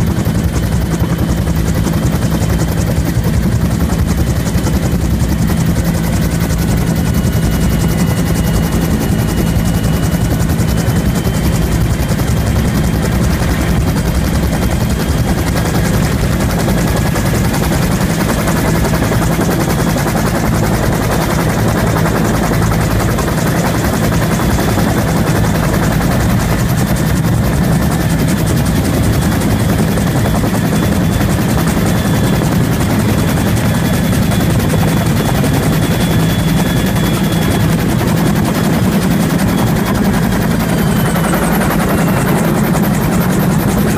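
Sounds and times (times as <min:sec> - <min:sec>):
helicopter rotor beating: 0:00.0 - 0:43.9
turbine engine running: 0:00.1 - 0:19.2.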